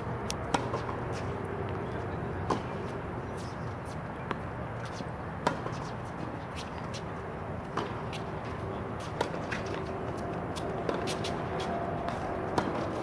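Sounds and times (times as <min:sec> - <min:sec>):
outdoor background hum: 0:00.0 - 0:13.0
tennis ball struck by rackets: 0:00.4 - 0:01.2, 0:02.4 - 0:02.9, 0:04.3 - 0:06.0, 0:07.6 - 0:08.3, 0:09.0 - 0:13.0.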